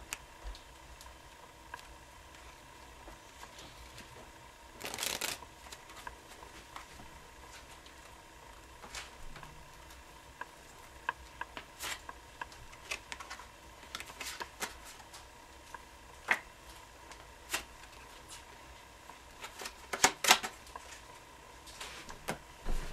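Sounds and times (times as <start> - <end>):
playing cards snapping: 4.8 - 5.4.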